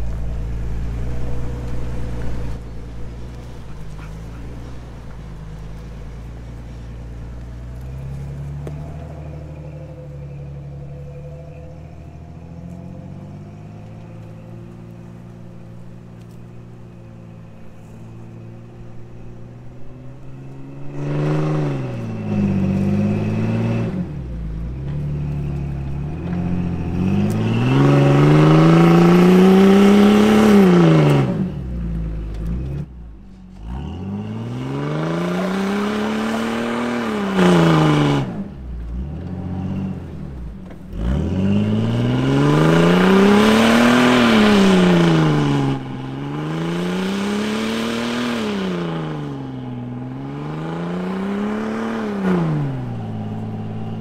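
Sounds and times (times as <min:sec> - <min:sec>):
vehicle engine revving under load: 0:00.0 - 0:54.0.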